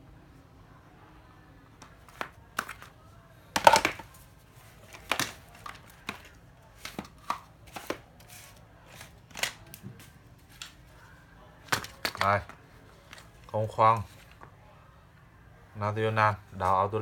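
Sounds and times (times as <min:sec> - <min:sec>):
hard plastic knocks and clatter: 0:03.6 - 0:04.1.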